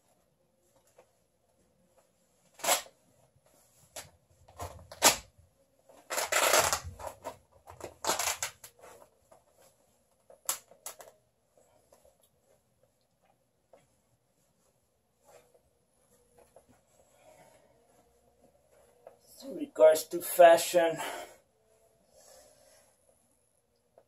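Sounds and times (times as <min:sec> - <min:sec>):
cloth ripping and rustling: 0:02.3 - 0:11.2.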